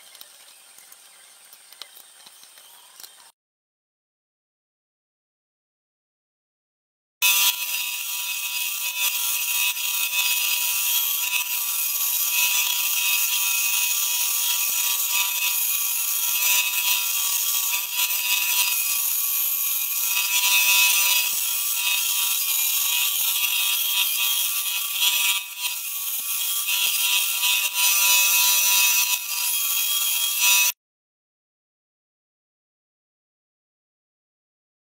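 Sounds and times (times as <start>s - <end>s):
bandsaw cutting metal: 7.2s - 30.8s.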